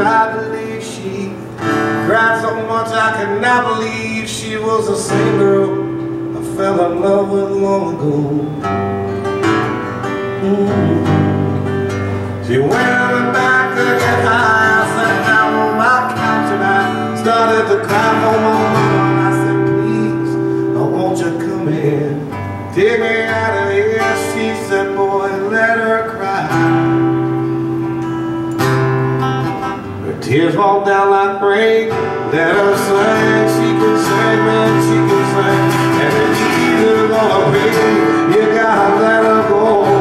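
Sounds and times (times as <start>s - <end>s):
acoustic guitar strumming chords: 0.0s - 40.0s.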